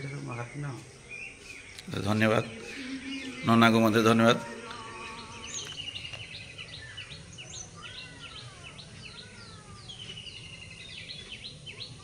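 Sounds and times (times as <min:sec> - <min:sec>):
short high bird calls: 0:01.3 - 0:08.6.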